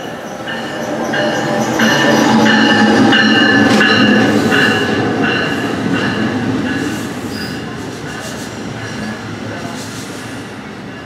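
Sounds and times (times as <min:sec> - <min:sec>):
high-pitched squeals: 0:00.0 - 0:06.3
train rumbling past: 0:00.0 - 0:11.0.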